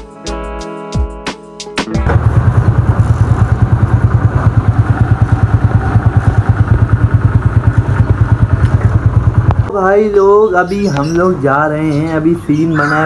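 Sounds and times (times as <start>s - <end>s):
motorcycle engine idling: 2.0s - 10.4s.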